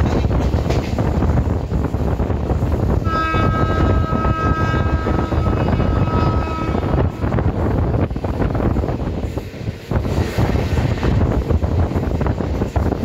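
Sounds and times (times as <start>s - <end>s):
train coach rumble and clatter: 0.0s - 13.0s
wind buffeting microphone: 0.0s - 13.0s
train horn blast: 3.0s - 7.7s.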